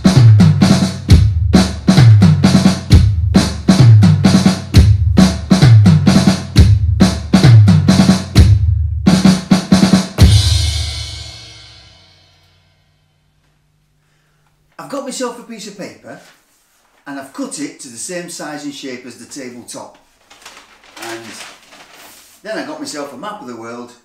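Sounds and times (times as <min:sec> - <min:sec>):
drum kit playing: 0:00.0 - 0:12.5.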